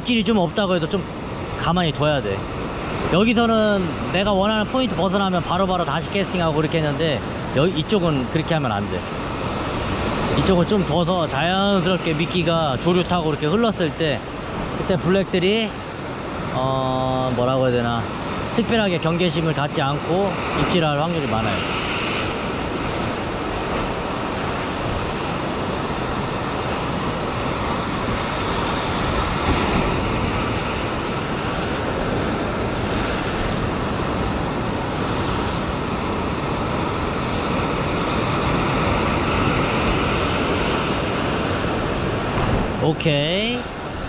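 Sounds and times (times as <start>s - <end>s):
surf breaking against rocks: 19.9s - 35.6s.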